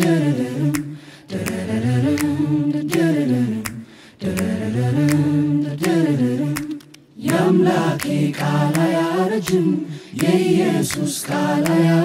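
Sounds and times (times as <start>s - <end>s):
vocal group humming chords: 0.0s - 12.0s
sharp clicks: 6.6s - 7.1s.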